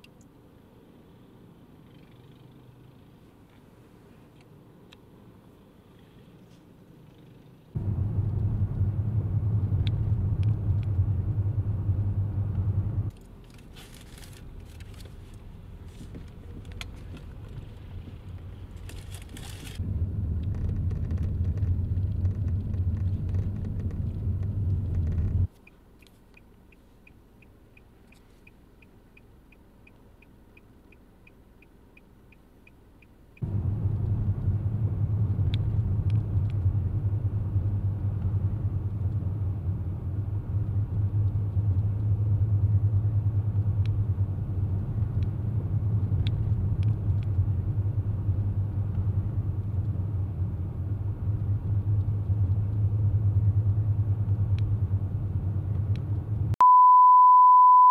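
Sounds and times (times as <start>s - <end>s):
vehicle rumble on highway: 0.0s - 56.6s
high beep tone: 56.6s - 57.9s.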